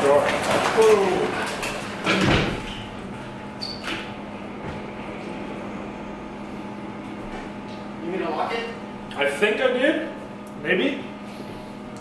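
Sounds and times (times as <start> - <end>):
steady low hum: 0.0 - 12.0
door squeak: 3.6 - 4.1.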